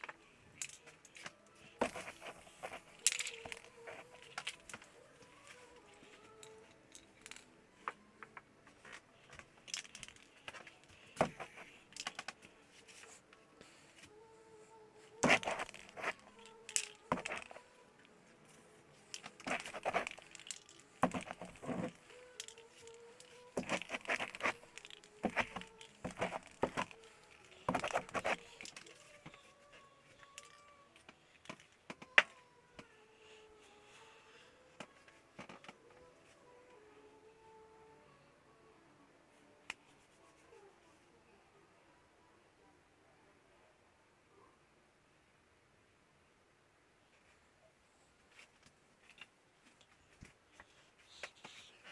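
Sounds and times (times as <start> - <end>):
paint scraping and crinkling: 0.6 - 7.5, 15.2 - 31.6.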